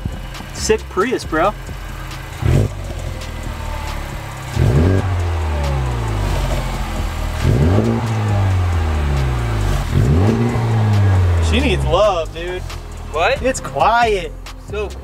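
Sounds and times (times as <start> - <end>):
car engine revving: 0.0 - 15.0.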